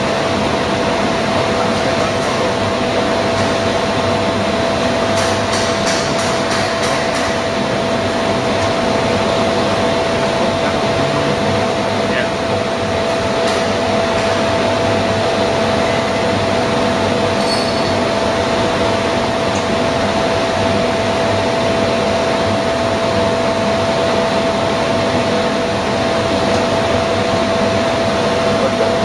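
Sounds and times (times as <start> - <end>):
vertical borer machine droning: 7.3 - 29.0.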